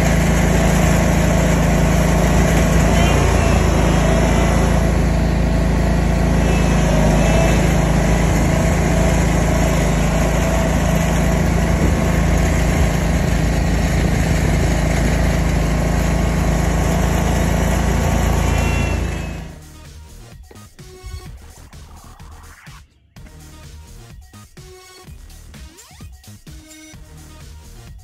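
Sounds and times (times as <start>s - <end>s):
lawn mower engine running: 0.0s - 21.5s.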